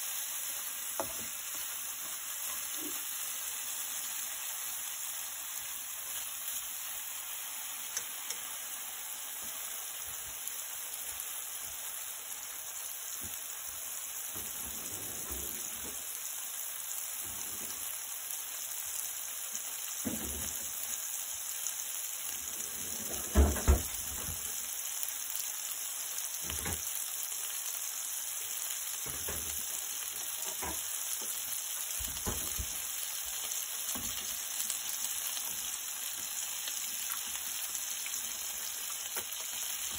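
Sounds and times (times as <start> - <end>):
cheese sizzling in frying pan: 0.0 - 39.9
knocks on frying pan: 1.0 - 1.4, 20.0 - 20.6, 23.3 - 24.0, 30.5 - 30.8.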